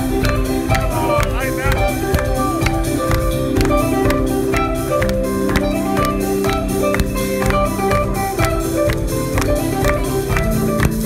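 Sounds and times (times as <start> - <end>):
electric guitars: 0.0 - 11.0.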